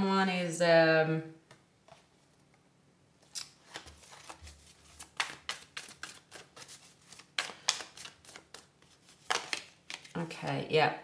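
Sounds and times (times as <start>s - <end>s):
cards being shuffled: 3.2s - 10.3s.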